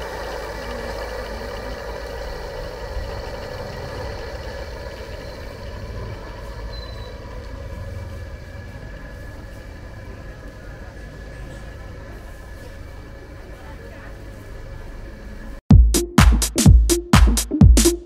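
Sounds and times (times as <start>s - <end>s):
motor humming: 0.0s - 15.5s.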